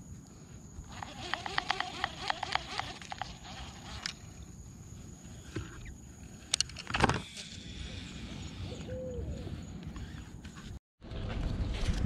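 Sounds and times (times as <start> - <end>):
high-pitched background hum: 0.0 - 10.7
fishing reel clicks: 0.9 - 4.2.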